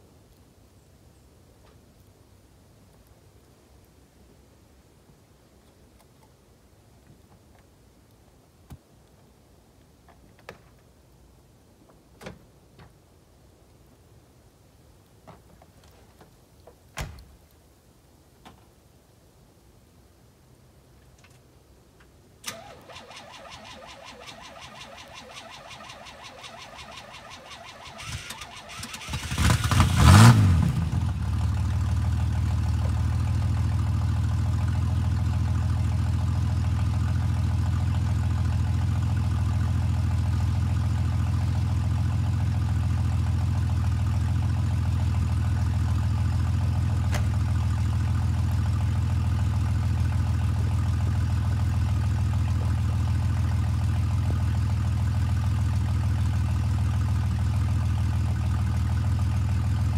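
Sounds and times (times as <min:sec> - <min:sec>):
engine idling: 0:22.4 - 0:59.9
pickup engine cold-starting: 0:22.4 - 0:59.9.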